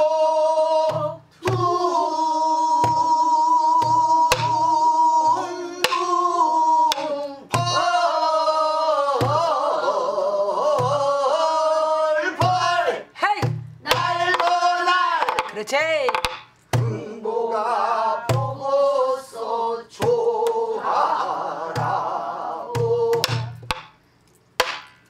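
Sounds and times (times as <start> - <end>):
stick clicking on drum shell: 15.2 - 16.6.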